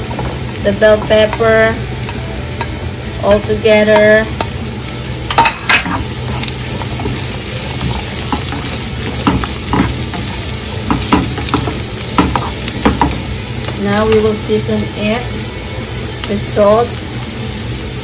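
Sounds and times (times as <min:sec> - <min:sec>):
vegetables sizzling in oil: 0:00.0 - 0:18.0
spatula scraping a pan: 0:05.5 - 0:10.6.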